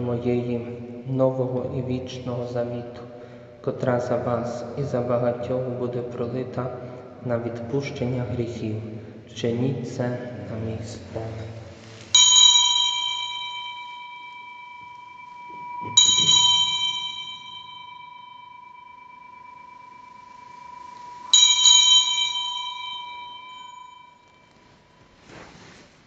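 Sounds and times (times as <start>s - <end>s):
altar bell ringing: 12.1s - 25.2s.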